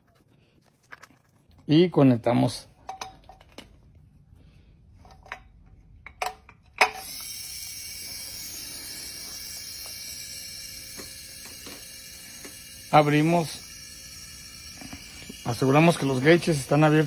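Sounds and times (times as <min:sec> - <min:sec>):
compressor running with steady hiss: 0:06.8 - 0:17.0.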